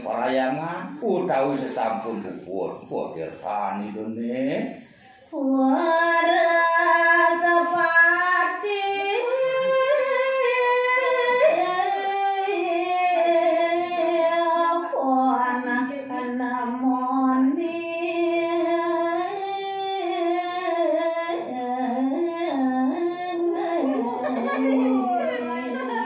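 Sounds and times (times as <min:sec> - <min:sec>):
woman singing unaccompanied: 0:05.3 - 0:26.0.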